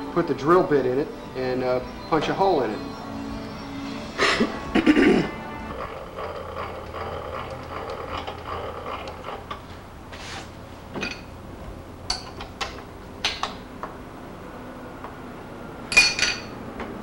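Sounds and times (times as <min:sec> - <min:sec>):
metal tools clinking: 0:11.0 - 0:11.4, 0:15.9 - 0:16.6.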